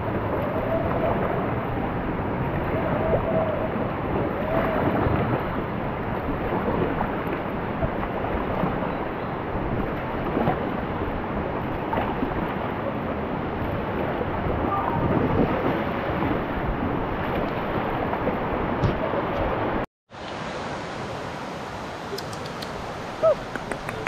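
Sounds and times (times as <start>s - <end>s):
wind noise on microphone: 0.0s - 19.8s
river water rushing: 0.0s - 24.0s
faint short calls: 22.0s - 24.0s.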